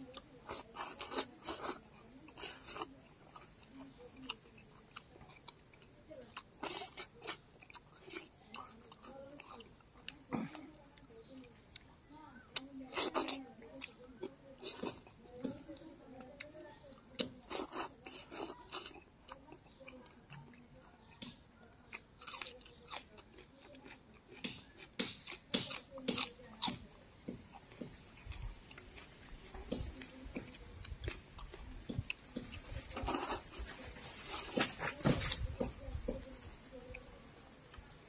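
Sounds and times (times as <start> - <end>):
wet chewing and lip smacks: 0.0 - 38.0
crunchy bite into chili: 17.1 - 19.0, 21.0 - 33.7.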